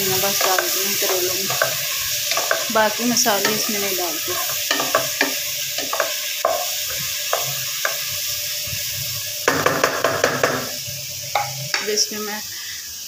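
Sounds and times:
vegetables sizzling in oil: 0.0 - 13.0
spatula scraping a pan: 0.2 - 8.1.

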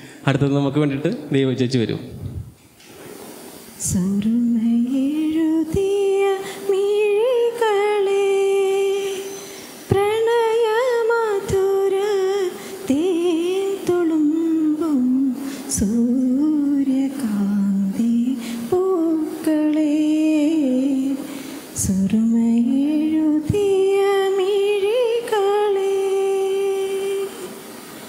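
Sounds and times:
woman singing into a microphone: 3.8 - 27.7.

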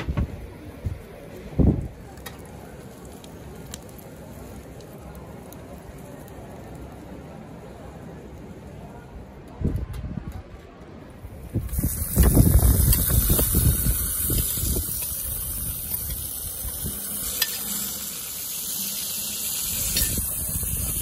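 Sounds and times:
wind buffeting microphone: 11.3 - 17.0
vegetables sizzling in oil: 11.5 - 21.0.

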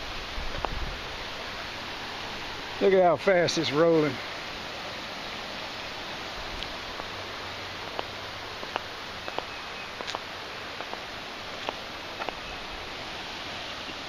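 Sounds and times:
river rushing: 0.0 - 14.0
small sharp clicks: 8.0 - 10.2.

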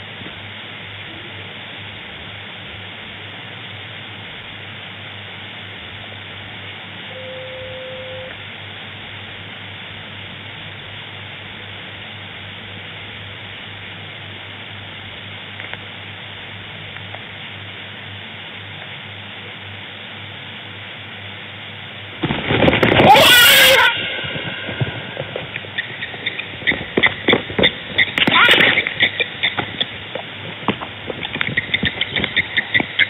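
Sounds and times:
faint low hum: 0.0 - 33.0
steady hiss: 0.0 - 33.0
loud animal call: 23.0 - 30.0.

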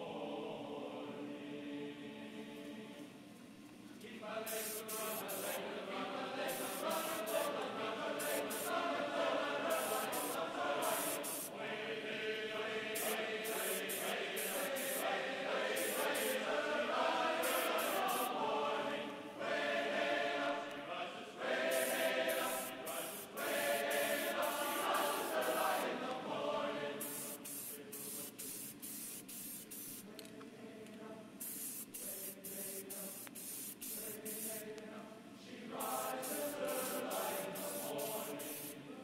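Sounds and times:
choir-like chanting music: 0.0 - 3.2, 4.0 - 28.6, 32.0 - 39.0
paint spray hissing: 4.5 - 5.6, 6.4 - 7.6, 8.2 - 8.8, 9.6 - 11.5, 12.9 - 15.1, 15.7 - 16.4, 17.4 - 18.3, 21.6 - 25.9, 27.0 - 30.1, 31.4 - 34.7, 35.8 - 38.8.

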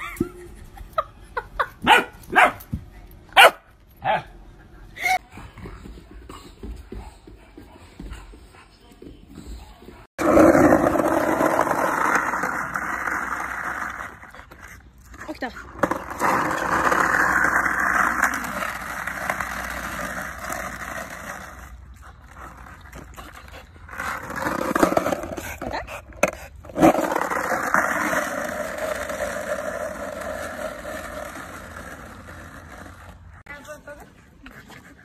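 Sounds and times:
skateboard wheels rolling on asphalt: 10.1 - 34.2.

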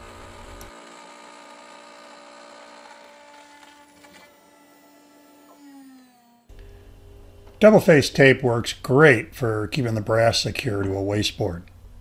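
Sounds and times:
router spindle whining: 0.0 - 6.5.

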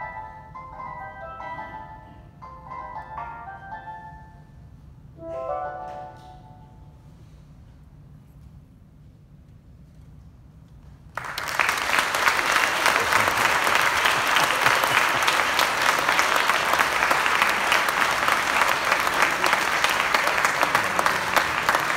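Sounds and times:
audience applause: 11.2 - 21.9.

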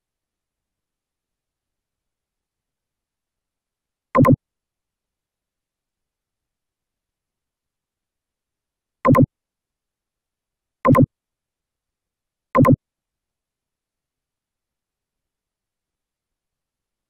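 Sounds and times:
short electronic blips: 4.2 - 4.4, 9.1 - 9.3, 10.9 - 11.1, 12.6 - 12.8.

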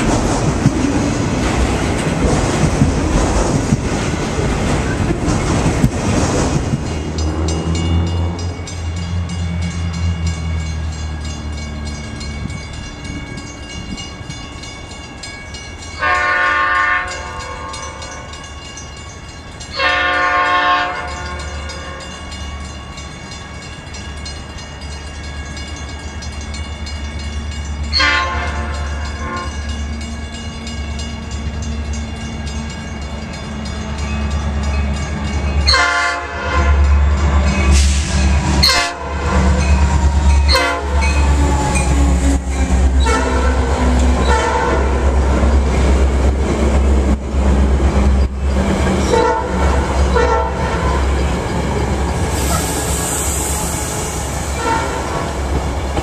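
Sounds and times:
train wheel and engine noise: 0.0 - 56.0
train horn blasts: 16.0 - 18.1, 19.8 - 22.0, 27.9 - 29.6, 35.6 - 37.0, 38.6 - 45.0, 49.1 - 51.1, 52.4 - 55.2.

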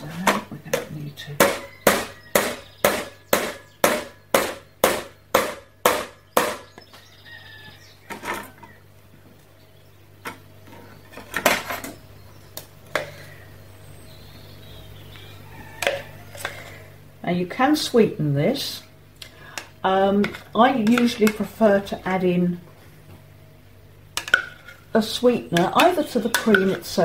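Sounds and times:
utensils clinking and scraping: 15.8 - 16.9, 24.2 - 25.0, 25.6 - 27.0.

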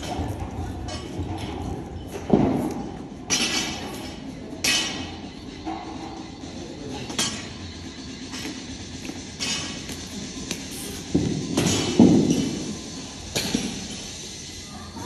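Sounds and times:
gym equipment metallic clanks: 3.3 - 6.0.

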